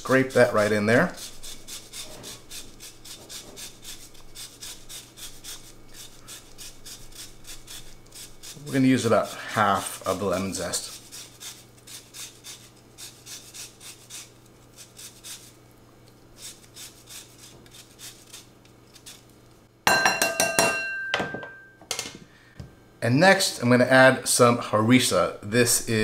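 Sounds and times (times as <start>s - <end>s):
grater scraping strokes: 0.0s - 15.6s, 16.3s - 19.3s.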